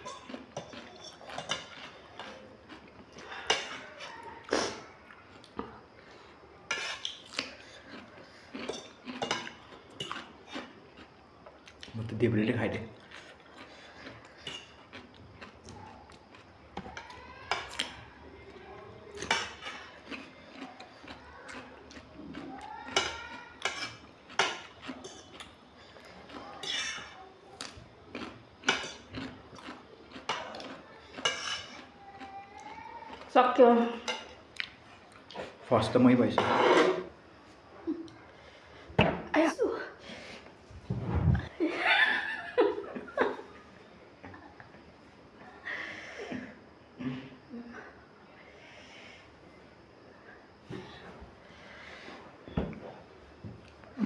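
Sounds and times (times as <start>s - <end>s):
cutlery clinking on ceramic plates: 0.0s - 2.3s, 8.6s - 10.2s, 22.9s - 25.4s, 30.2s - 31.9s
forks clinking on plates: 0.0s - 2.3s.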